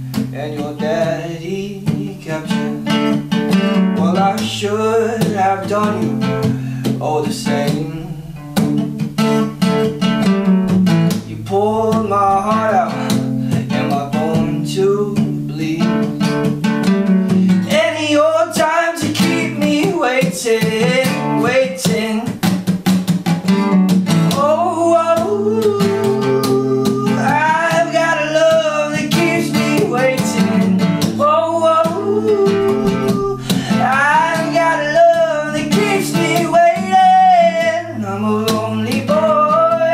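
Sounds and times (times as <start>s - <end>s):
man singing: 0.0s - 9.6s, 10.8s - 22.6s, 24.1s - 39.9s
acoustic guitar strumming: 0.0s - 39.9s.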